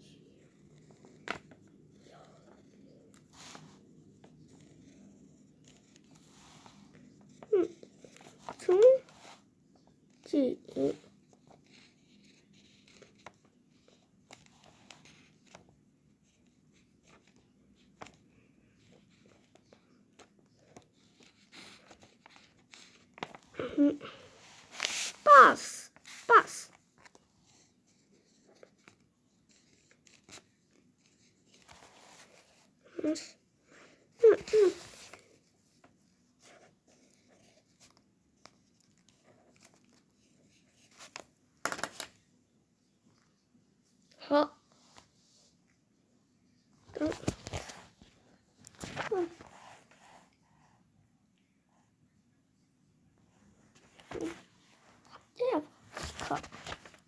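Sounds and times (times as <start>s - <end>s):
writing on paper: 10.9s - 15.6s, 27.0s - 33.4s
rustling scrape: 24.4s - 26.6s.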